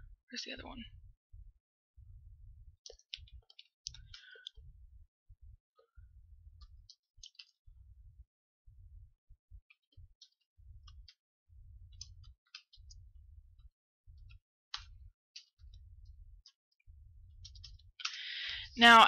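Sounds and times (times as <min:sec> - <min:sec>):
low hum: 0:00.0 - 0:19.0.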